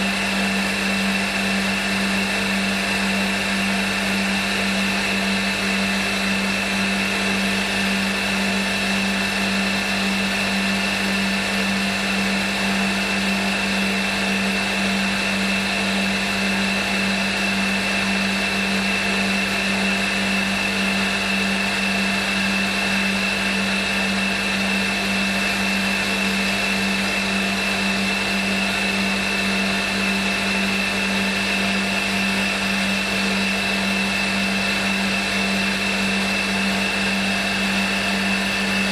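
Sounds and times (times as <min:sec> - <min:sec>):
milling machine hum and whine: 0:00.0 - 0:38.9.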